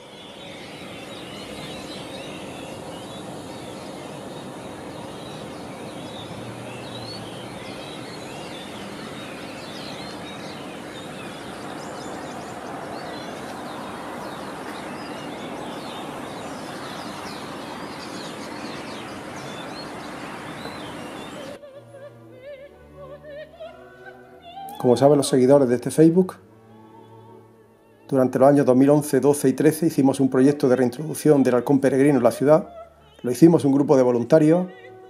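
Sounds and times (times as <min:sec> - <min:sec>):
birds chirping and chattering: 0:00.0 - 0:21.6
steady background hum: 0:00.0 - 0:35.0.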